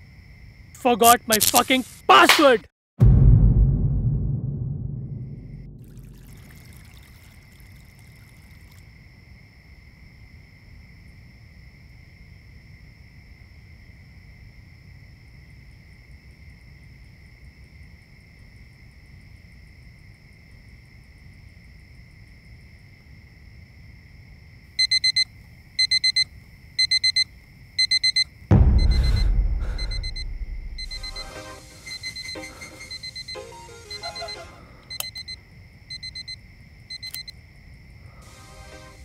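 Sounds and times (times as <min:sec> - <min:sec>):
loud low boom: 0:03.0 - 0:06.7, 0:28.5 - 0:31.2
digital alarm clock beeping: 0:24.8 - 0:37.3
faint high-pitched tone: 0:28.6 - 0:35.0.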